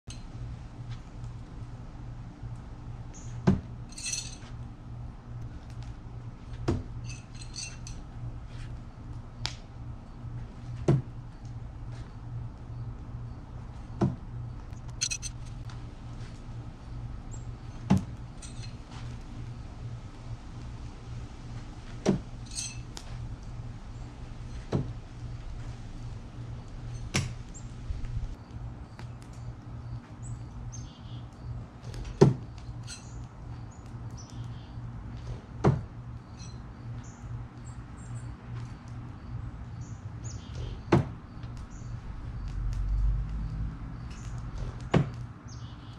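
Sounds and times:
low hum: 0.1 - 31.0.

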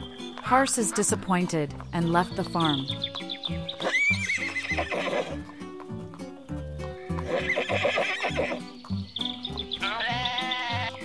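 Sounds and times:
horse whinnying: 3.5 - 5.6, 6.9 - 8.8, 9.6 - 11.0.

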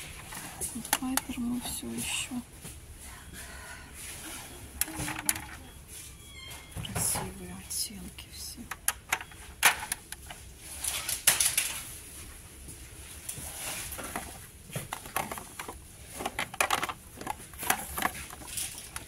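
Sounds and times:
handling clicks and rustles: 4.8 - 5.7, 13.3 - 19.0.

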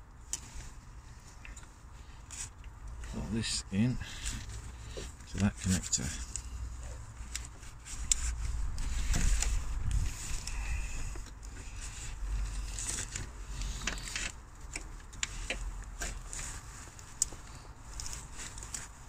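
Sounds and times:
handling noise rubbing and rumble: 0.0 - 19.0.

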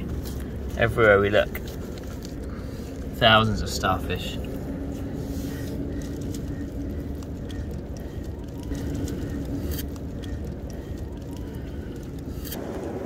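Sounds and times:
low outdoor rumble: 0.0 - 13.0
bird calling: 2.4 - 12.5
faint clicks: 4.4 - 12.6.

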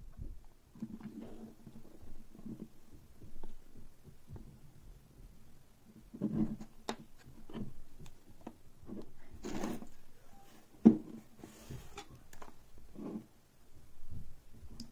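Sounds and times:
scraping rustle: 8.8 - 13.3.

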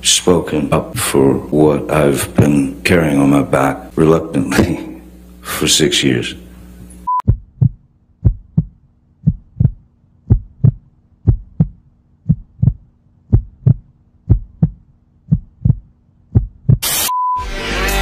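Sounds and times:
faint low hum: 0.0 - 16.8
heartbeat double thump: 7.1 - 16.8.

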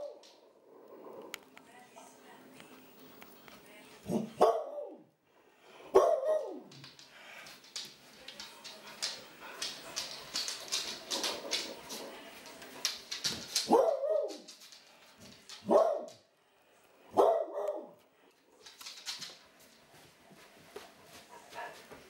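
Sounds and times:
dog barking: 4.1 - 5.1, 5.9 - 6.7, 13.7 - 14.5, 15.6 - 16.2, 17.1 - 18.0
dog claws clicking on wooden floor: 6.4 - 16.2, 17.6 - 20.0.

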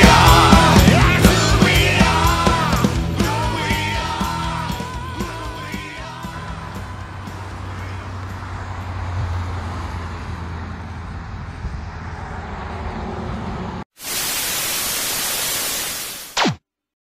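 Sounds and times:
loud television static: 14.0 - 16.6.

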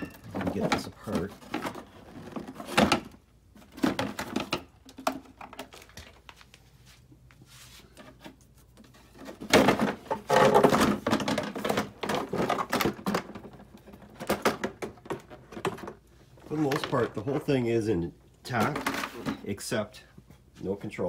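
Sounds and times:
scooter parts rattling: 0.0 - 6.3, 9.0 - 17.3.

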